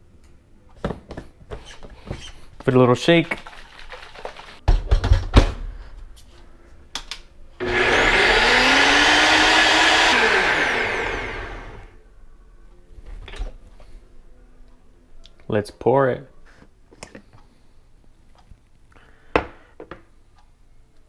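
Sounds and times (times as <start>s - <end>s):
blender motor whirring: 7.6s - 12.0s.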